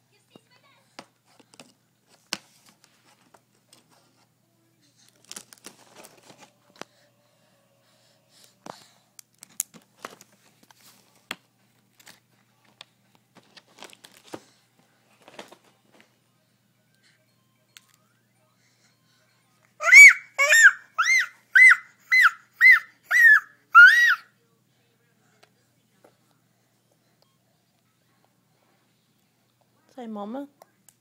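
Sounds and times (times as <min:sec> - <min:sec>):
plastic sleeve crinkling: 0:05.1 - 0:06.6, 0:13.3 - 0:15.8.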